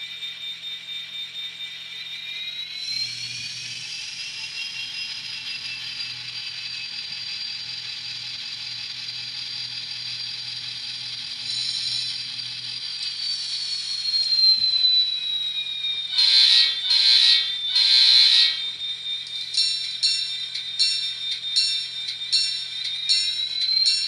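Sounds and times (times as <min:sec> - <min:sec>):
diesel engine sound with whine: 0:02.8 - 0:21.4
horn blasts: 0:16.2 - 0:18.6.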